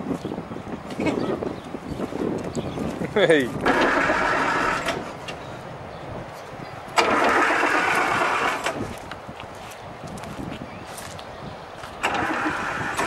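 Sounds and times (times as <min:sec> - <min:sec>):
engine cranking with starter motor: 0:03.6 - 0:05.2, 0:07.0 - 0:08.8, 0:12.0 - 0:13.0.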